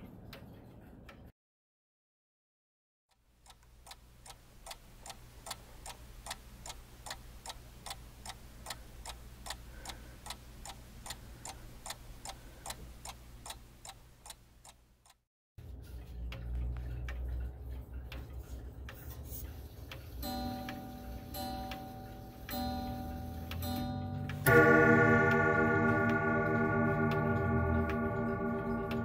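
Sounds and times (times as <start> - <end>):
grandfather clock ticking: 3.4 - 15.2, 16.0 - 29.0.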